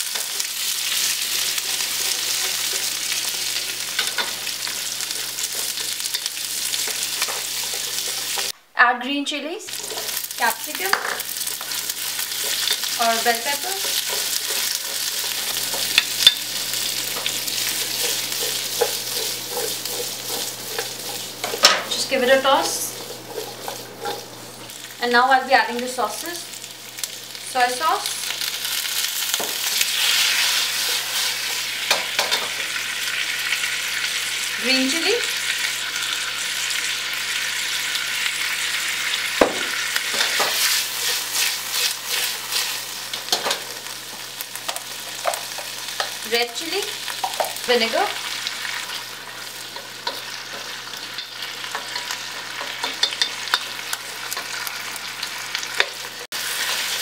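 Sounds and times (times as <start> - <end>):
vegetables sizzling in oil: 0.0 - 8.6, 9.3 - 57.0
sharp knock: 39.4 - 39.8.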